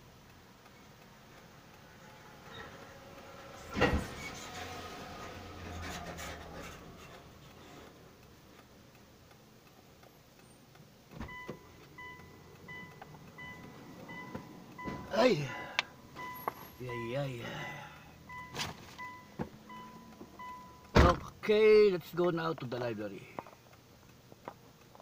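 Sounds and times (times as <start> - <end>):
car warning chime beeping: 8.1 - 22.4
handling noise inside car: 11.1 - 17.1, 18.3 - 21.3
thump: 21.0 - 21.3.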